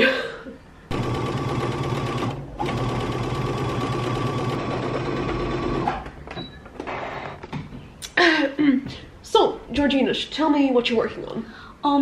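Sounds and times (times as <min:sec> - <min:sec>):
electric sewing machine running: 0:00.9 - 0:05.9.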